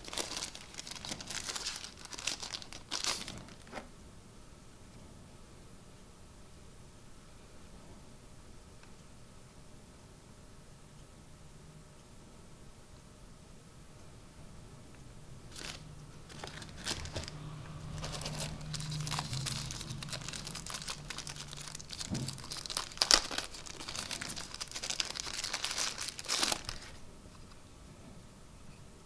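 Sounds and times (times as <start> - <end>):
packaging rustling and crackling: 0.0 - 3.9, 15.5 - 27.6.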